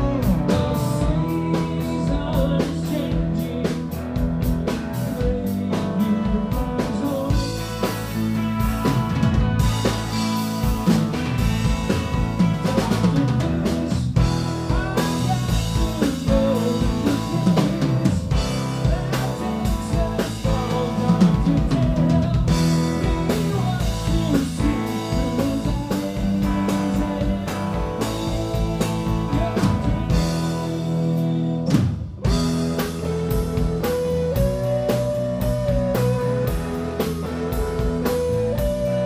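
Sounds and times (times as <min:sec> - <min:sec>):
man singing: 0:00.0 - 0:08.8, 0:12.3 - 0:39.0
drum kit: 0:00.0 - 0:39.0
electric bass: 0:00.0 - 0:39.0
electric guitar: 0:00.0 - 0:39.0.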